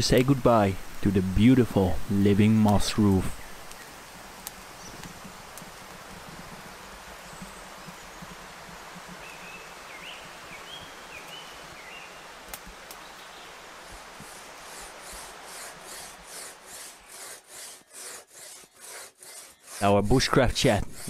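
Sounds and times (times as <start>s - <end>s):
bird chirping: 7.2s - 12.3s
hand saw cutting wood: 13.9s - 21.0s.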